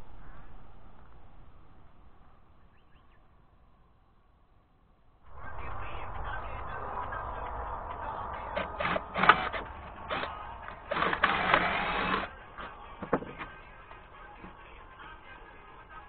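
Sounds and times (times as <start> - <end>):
cordless drill whirring into wood: 8.7 - 12.3.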